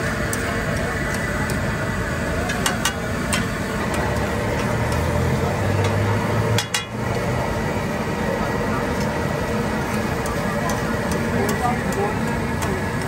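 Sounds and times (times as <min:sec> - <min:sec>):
low engine hum: 0:00.0 - 0:13.0
street stall noise: 0:00.0 - 0:13.0
metal utensils clinking on griddle: 0:02.4 - 0:05.1, 0:05.8 - 0:07.0.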